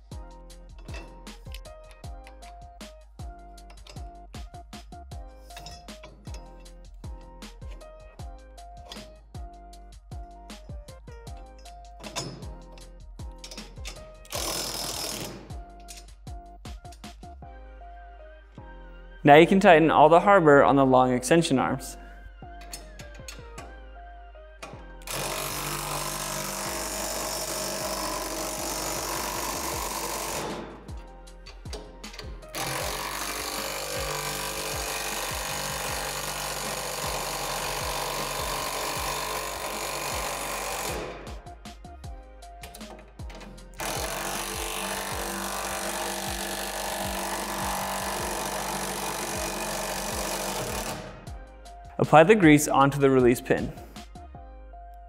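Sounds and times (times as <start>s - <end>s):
quiet background music: 0.0s - 55.0s
cordless power driver running: 25.0s - 30.6s, 32.5s - 41.1s, 43.8s - 51.1s.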